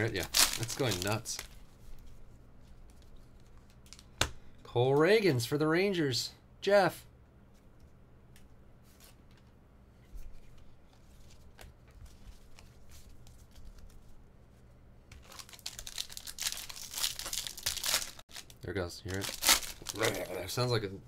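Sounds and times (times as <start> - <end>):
foil wrapper tearing and crinkling: 0.0 - 1.5, 15.2 - 20.3
soft card handling: 0.0 - 5.1, 7.5 - 18.1.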